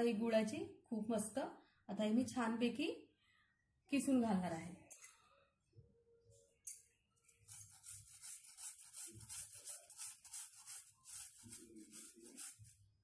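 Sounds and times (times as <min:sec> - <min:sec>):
grater rasping: 0:07.4 - 0:12.8.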